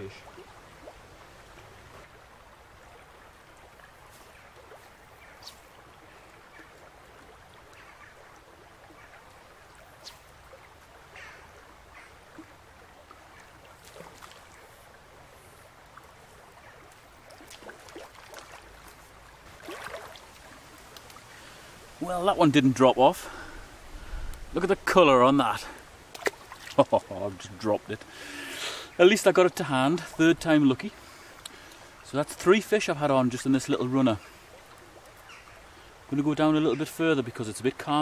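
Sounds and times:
stony river running: 0.0s - 38.0s.

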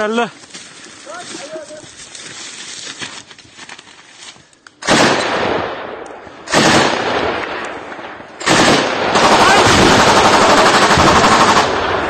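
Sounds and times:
loud gunfire bursts: 4.8s - 12.0s.

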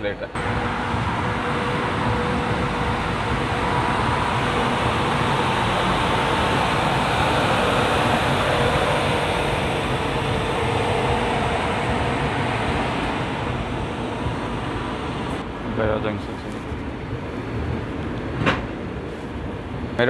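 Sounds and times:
train wheels rumbling on rails: 0.0s - 20.0s
rushing air: 0.4s - 15.8s.

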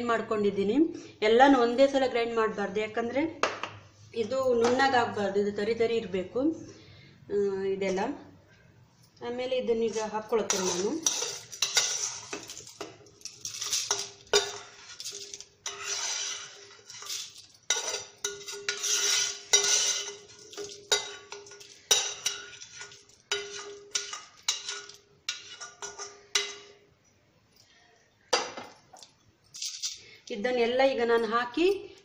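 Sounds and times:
spoon scraping metal pan: 9.8s - 26.8s.

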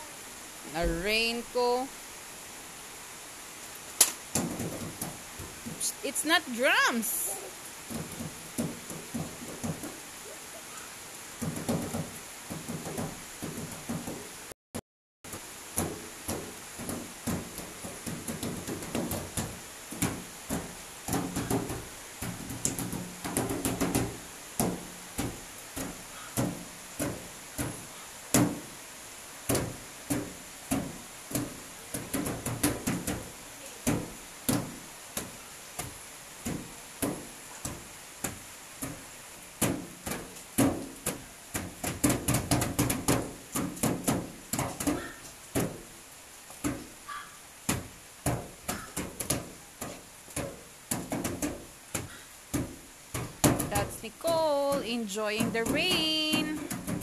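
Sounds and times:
hands slapping metal car bonnet: 47.7s - 53.7s.

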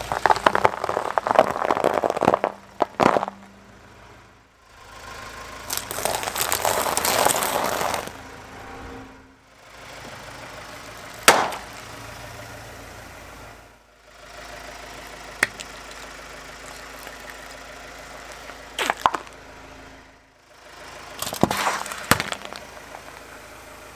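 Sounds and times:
tyre crushing small objects: 0.0s - 3.5s, 5.6s - 8.2s, 11.3s - 11.9s, 15.4s - 19.4s, 21.2s - 23.3s
car engine idling: 0.0s - 23.9s
drink can bursting: 11.3s - 11.8s
sharp snap: 11.3s - 11.8s, 15.4s - 15.8s.

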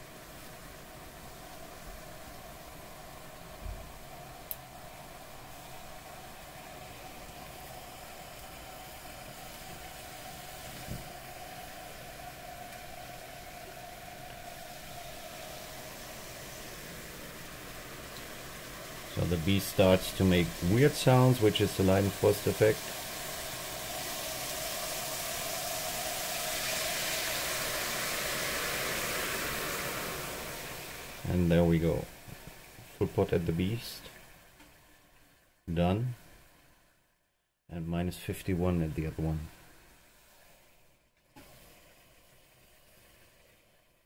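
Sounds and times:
liquid nitrogen boiling hiss: 0.0s - 37.0s, 37.8s - 44.0s
soft thump: 10.8s - 11.1s.

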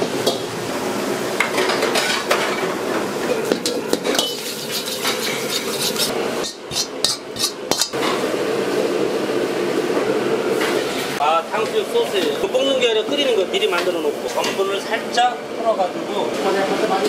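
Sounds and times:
kitchen din: 1.4s - 8.2s
metal ladle scraping in wok: 4.0s - 7.9s.

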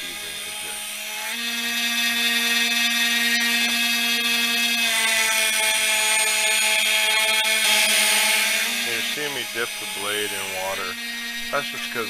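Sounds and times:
belt grinder motor whine: 0.0s - 12.0s.

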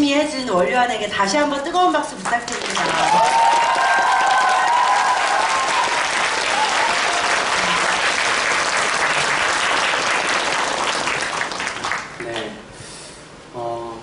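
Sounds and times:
audience applauding: 2.5s - 12.5s.

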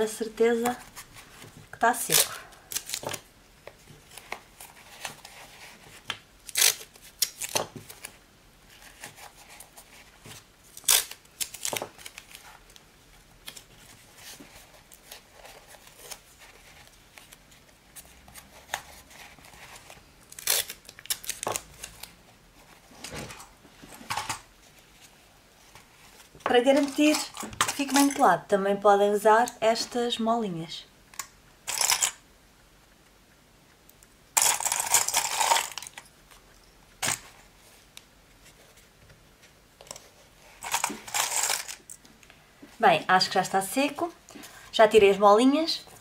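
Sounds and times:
adhesive tape tearing: 6.4s - 7.6s, 10.7s - 12.4s, 20.3s - 22.2s.

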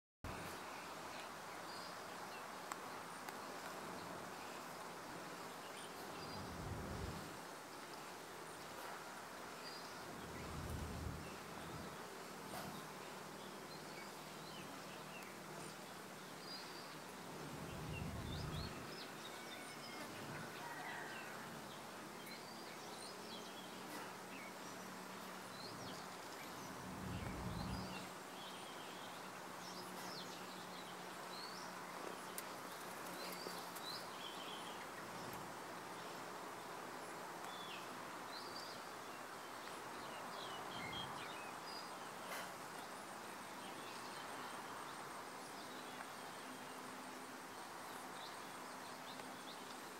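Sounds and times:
steady background hiss: 0.3s - 49.9s
small birds chirping: 9.6s - 20.4s, 21.8s - 49.9s.

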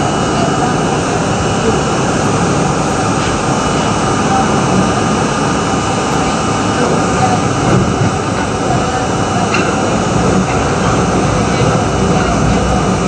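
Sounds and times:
subway car wheels roaring: 0.0s - 13.0s.

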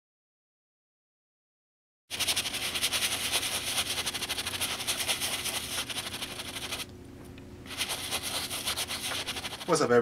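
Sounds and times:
brush scrubbing a sneaker: 2.1s - 6.8s, 7.7s - 9.9s.

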